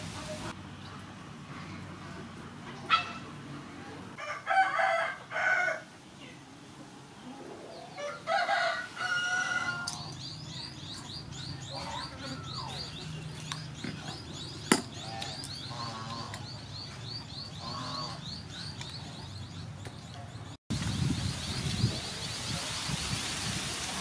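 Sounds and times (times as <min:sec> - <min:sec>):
rooster crowing: 0:04.2 - 0:05.9, 0:08.0 - 0:10.0.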